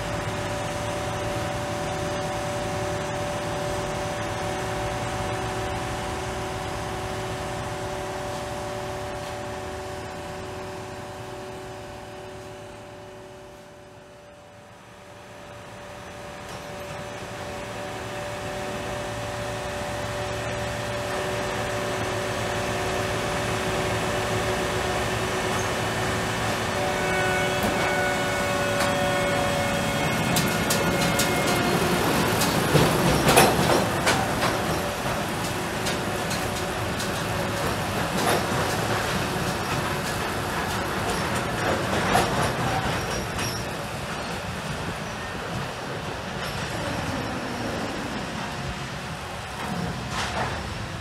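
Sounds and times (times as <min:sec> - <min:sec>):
train mechanical hum: 0:00.0 - 0:51.0
wheels clacking on rails: 0:14.3 - 0:51.0.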